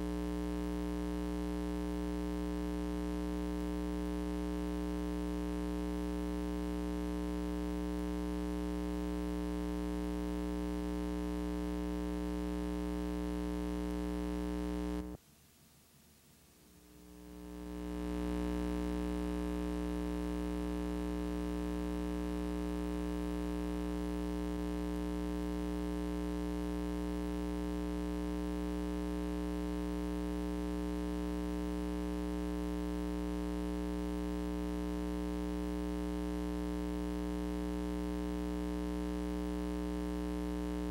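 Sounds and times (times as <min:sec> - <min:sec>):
electrical mains hum: 0:00.0 - 0:15.2, 0:16.0 - 0:40.9.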